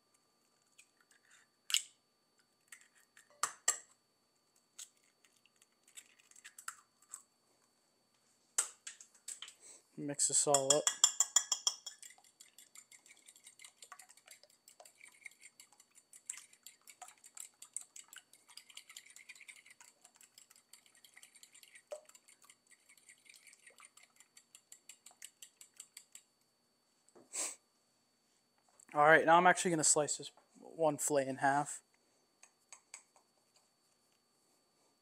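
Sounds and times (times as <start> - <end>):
eggs whisked in a bowl: 2.6 - 3.8, 4.8 - 7.3, 10.2 - 26.4.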